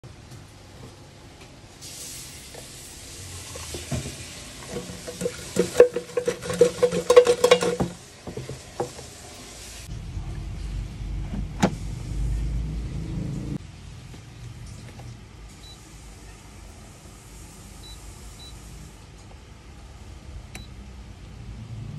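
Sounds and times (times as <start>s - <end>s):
steady hiss: 1.8s - 5.8s, 15.5s - 19.1s
food rattling in fryer basket: 3.5s - 9.2s
low hum: 9.9s - 13.6s.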